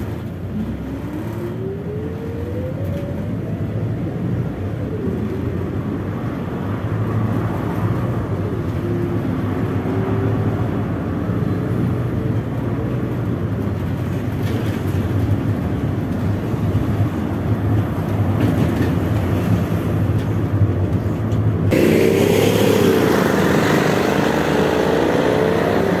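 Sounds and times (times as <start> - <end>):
bus engine and road rumble: 0.0 - 26.0
street traffic: 0.0 - 26.0
vehicle engine pulling away: 21.7 - 26.0.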